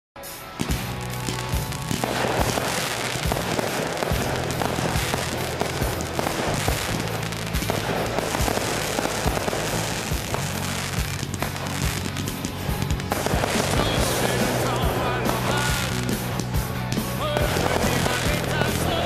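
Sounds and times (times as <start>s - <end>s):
fireworks hiss: 0.2s - 19.0s
music playing: 0.2s - 19.0s
fireworks bangs and crackles: 0.3s - 19.0s.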